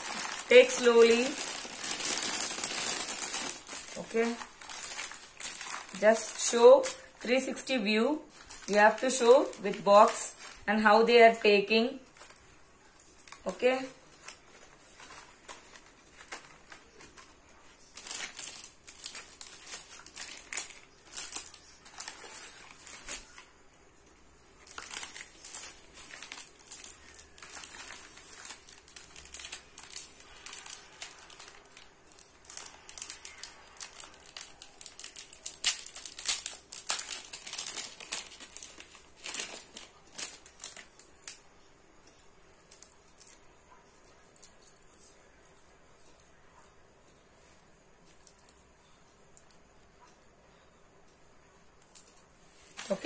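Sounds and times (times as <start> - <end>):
newspaper and plastic crinkling: 0.0 - 46.4, 47.1 - 49.7, 51.7 - 53.0.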